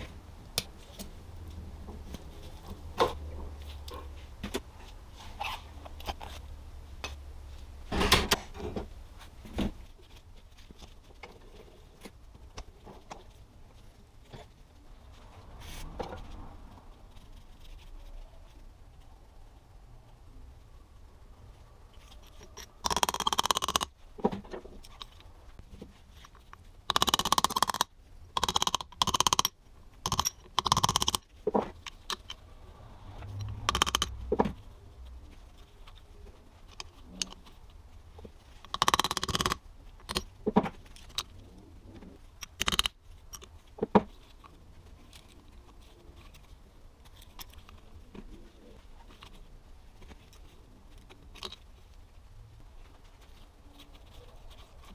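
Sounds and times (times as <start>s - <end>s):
metal parts scraping and clinking: 22.0s - 23.9s, 28.4s - 31.2s.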